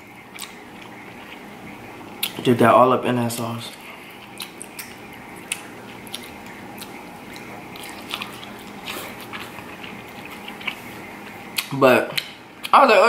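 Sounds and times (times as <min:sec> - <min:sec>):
close chewing: 0:00.2 - 0:02.5, 0:03.2 - 0:12.8
wet mouth sounds: 0:03.7 - 0:12.7.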